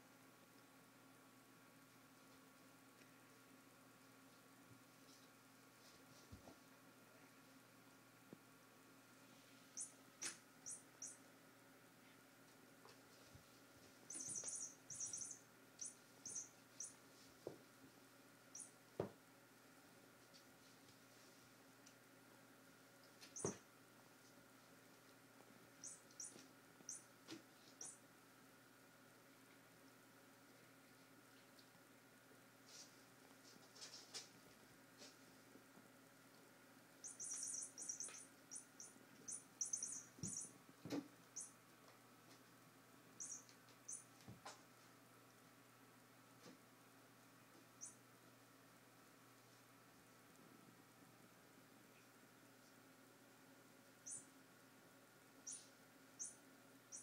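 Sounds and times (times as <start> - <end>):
cats squeaking: 14.1 - 17.0, 23.3 - 23.6, 37.0 - 40.6, 43.2 - 44.1, 55.5 - 57.0.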